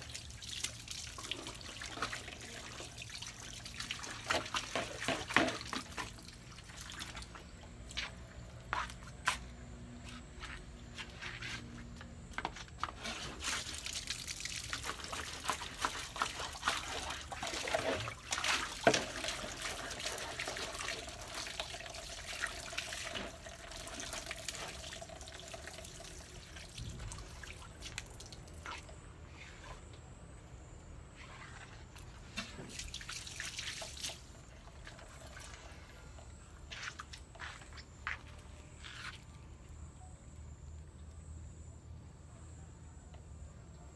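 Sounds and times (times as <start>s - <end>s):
hose water splashing on tiles: 0.0s - 8.2s, 12.4s - 29.8s, 31.2s - 35.8s
faint steady tone: 34.2s - 43.9s.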